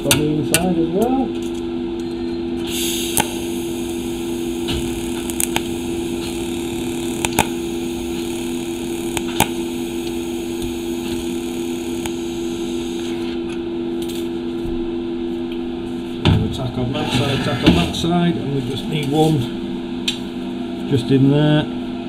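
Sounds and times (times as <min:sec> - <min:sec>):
constant hum: 0:00.0 - 0:22.0
welding arc hiss: 0:02.6 - 0:13.3
sharp clicks: 0:04.6 - 0:12.2.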